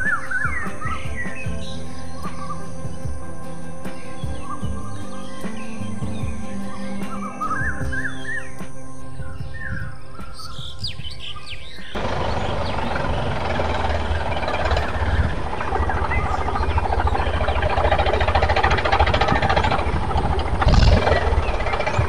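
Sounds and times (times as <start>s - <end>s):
background music: 0.0s - 22.0s
birds chirping: 0.0s - 22.0s
rattling engine running: 12.0s - 22.0s.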